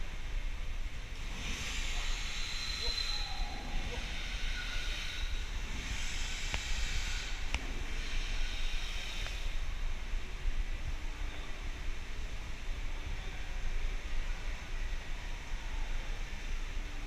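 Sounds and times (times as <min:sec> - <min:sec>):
low background hum: 0:00.0 - 0:17.0
hissing noise: 0:01.0 - 0:10.2.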